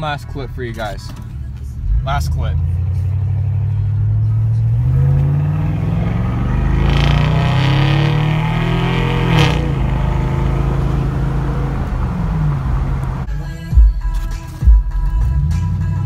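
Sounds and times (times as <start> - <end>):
truck engine accelerating: 1.3 - 13.3.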